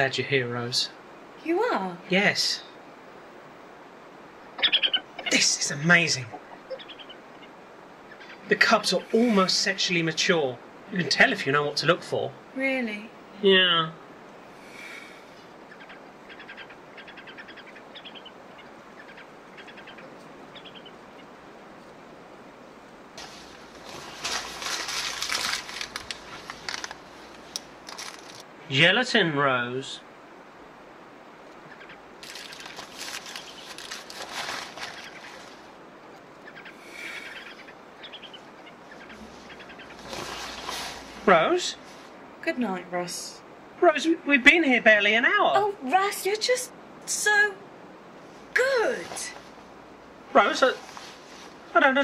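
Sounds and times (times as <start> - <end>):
low hiss of night ambience: 0.0 - 52.0
faint chirping trills: 2.5 - 22.6, 31.4 - 34.0, 34.8 - 40.7.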